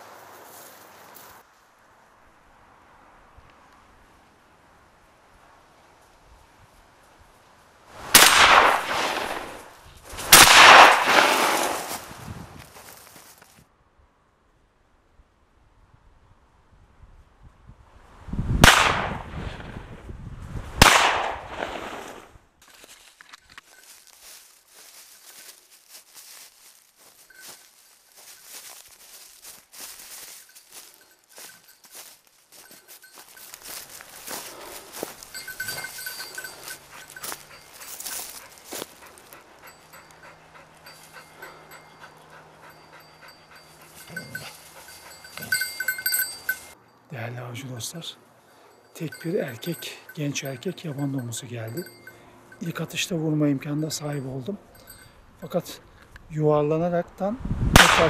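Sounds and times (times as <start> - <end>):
gunshots with echo: 8.2 - 9.6, 10.3 - 11.9, 18.6 - 19.3, 20.8 - 22.1, 57.8 - 58.0
dog panting: 34.4 - 46.7.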